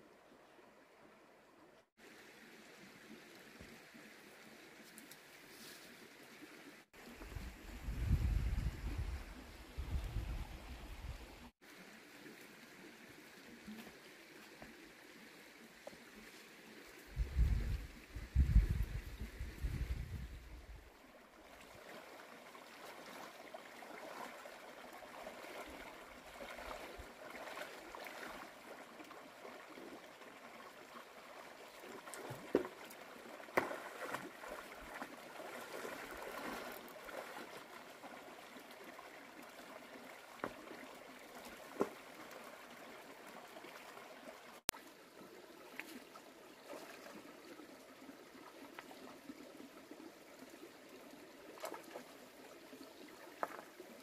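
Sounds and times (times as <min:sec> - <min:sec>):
stream trickling over rocks: 0:00.0 - 0:54.0
person wading among stones: 0:31.8 - 0:38.4.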